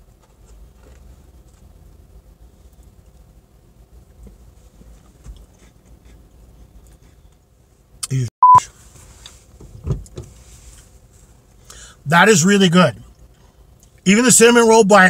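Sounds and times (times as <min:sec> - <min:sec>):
censor bleep: 0:08.4 - 0:08.6.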